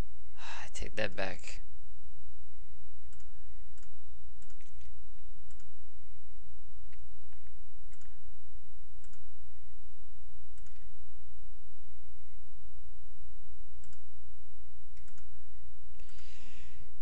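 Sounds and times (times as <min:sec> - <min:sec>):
low hum: 0:00.0 - 0:17.0
computer mouse clicking: 0:03.1 - 0:04.9, 0:05.5 - 0:05.7, 0:07.3 - 0:08.2, 0:09.0 - 0:09.2, 0:10.6 - 0:10.9, 0:13.8 - 0:14.1, 0:15.0 - 0:15.3.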